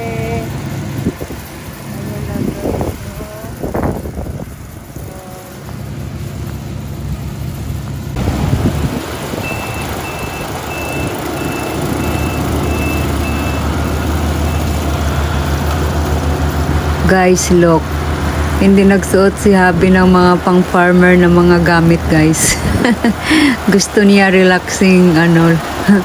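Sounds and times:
combine harvester engine hum: 0.0 - 26.0
electronic warning beeper: 9.4 - 13.8.

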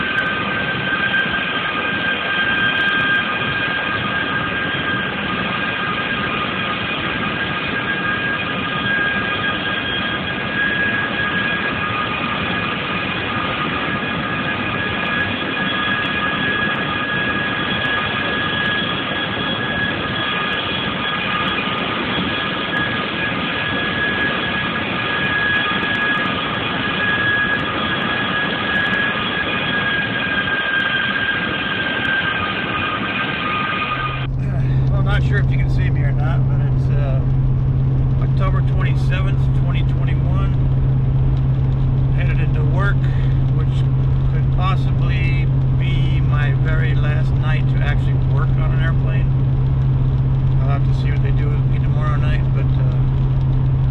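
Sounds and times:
jet engines whining: 0.0 - 53.9.

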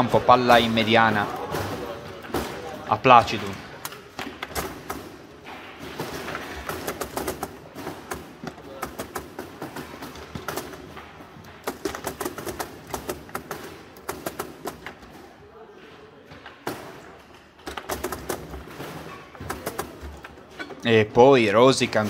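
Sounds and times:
foosball ball clacks and knocks: 3.2 - 15.2, 16.4 - 20.6.

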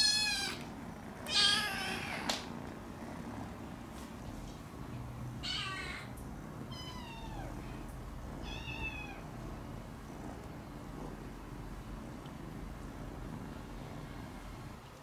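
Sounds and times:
kitten meowing: 0.0 - 0.6, 1.3 - 2.3, 5.4 - 6.1, 6.7 - 7.5, 8.4 - 9.2.

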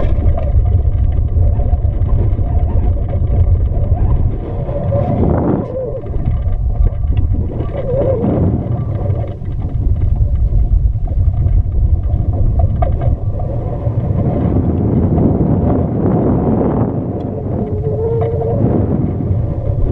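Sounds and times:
wind buffeting low rumble: 0.0 - 19.9.

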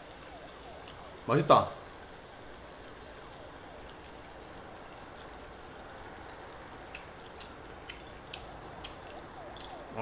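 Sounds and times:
meat sizzling in a frying pan: 0.0 - 8.6
small pops: 6.2 - 10.0.

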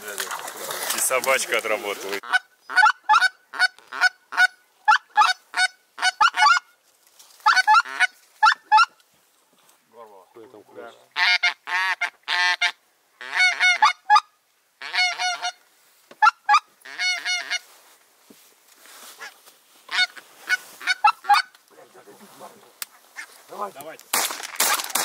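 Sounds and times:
goose honking: 2.2 - 6.7, 7.4 - 9.0, 11.2 - 15.6, 16.2 - 17.7, 19.2 - 21.6
fainter lower goose calling: 2.2 - 6.8, 7.4 - 9.0, 11.1 - 15.6, 16.2 - 17.8, 19.1 - 21.6, 22.9 - 23.5.

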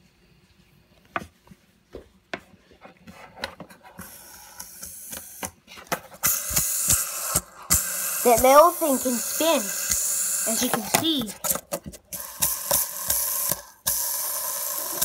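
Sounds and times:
fidget spinner whirring: 6.1 - 15.0.

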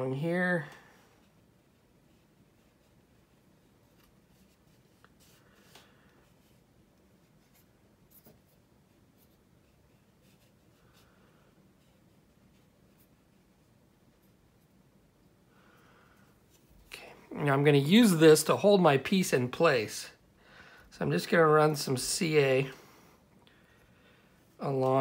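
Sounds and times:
soft rubbing of plastic: 1.1 - 15.4, 16.2 - 17.2.

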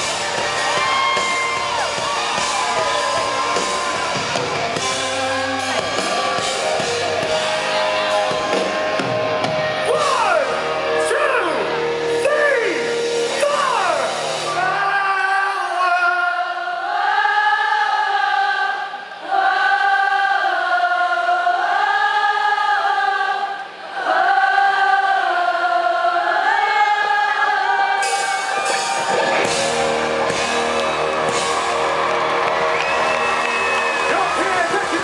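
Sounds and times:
rock band with bass and drums: 0.0 - 14.8, 28.0 - 35.0
crowd singing: 0.0 - 35.0.

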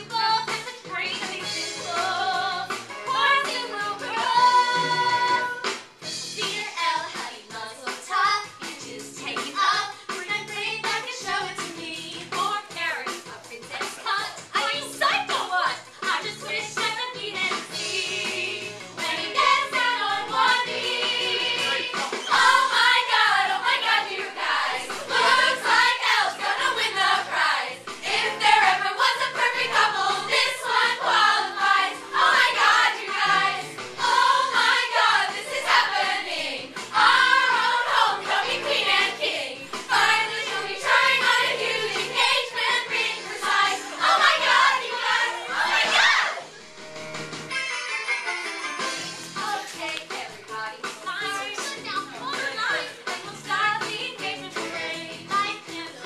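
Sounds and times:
girls singing together: 0.0 - 5.7, 12.4 - 46.5, 51.0 - 56.0
instrumental accompaniment: 17.7 - 55.2.

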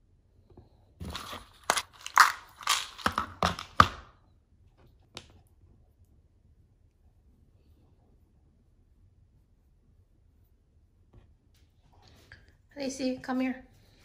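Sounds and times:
plastic pouch crinkling: 1.2 - 3.7.

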